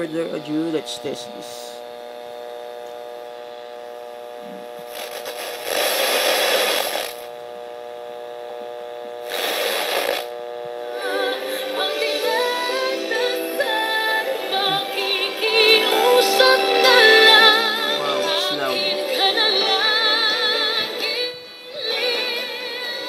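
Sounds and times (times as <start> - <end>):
mains hum: 0.0 - 23.0
loud rushing radio hiss: 4.5 - 7.4, 9.2 - 22.9
radio music with singing: 10.8 - 23.0.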